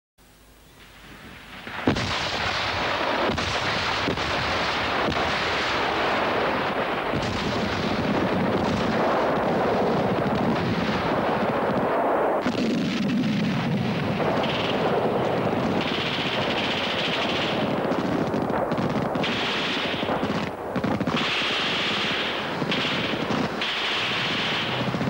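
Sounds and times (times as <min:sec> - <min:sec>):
explosions: 0:00.9 - 0:25.0
gunfire: 0:01.4 - 0:25.0.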